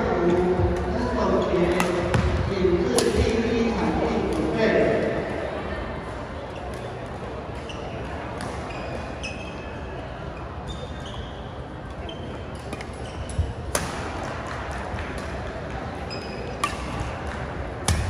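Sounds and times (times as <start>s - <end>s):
murmur of voices: 0.0s - 18.0s
racket hitting shuttlecock: 1.7s - 2.3s, 2.9s - 3.3s, 13.7s - 15.4s, 16.6s - 18.0s
shoe squeaks on court floor: 7.6s - 9.8s, 10.4s - 13.6s, 16.0s - 16.8s.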